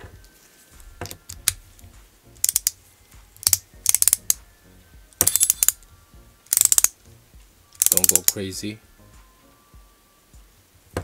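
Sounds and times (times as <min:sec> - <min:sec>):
ratcheting driver clicking: 0:02.4 - 0:02.8, 0:03.4 - 0:04.4, 0:05.2 - 0:05.8, 0:06.5 - 0:07.0, 0:07.8 - 0:08.4.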